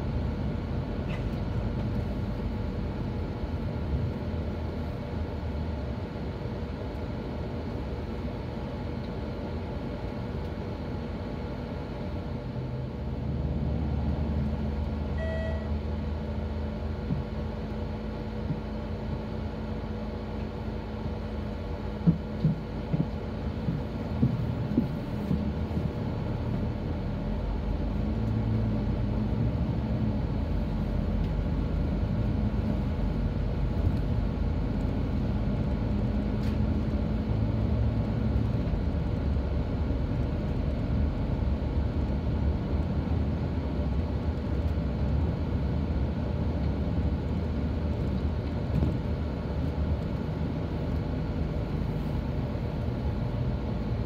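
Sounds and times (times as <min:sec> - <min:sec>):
bus engine and road noise: 0:00.0 - 0:54.0
short electronic beep: 0:15.2 - 0:15.8.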